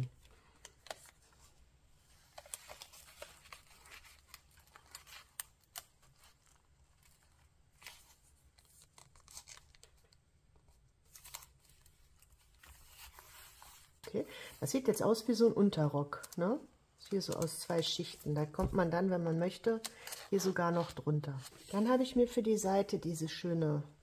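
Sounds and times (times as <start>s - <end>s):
thin paper rustling and crinkling: 0.6s - 14.0s.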